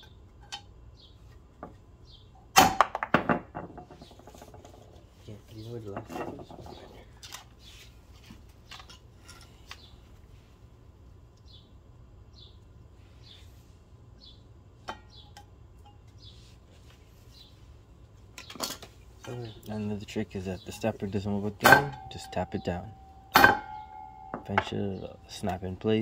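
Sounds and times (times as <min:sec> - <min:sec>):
low steady hum: 0:00.0 - 0:26.0
sharp metallic clink: 0:21.6 - 0:25.4.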